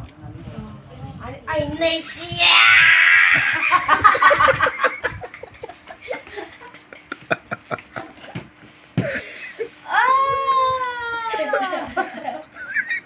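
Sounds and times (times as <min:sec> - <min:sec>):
people laughing: 0:03.4 - 0:08.4, 0:11.3 - 0:13.0.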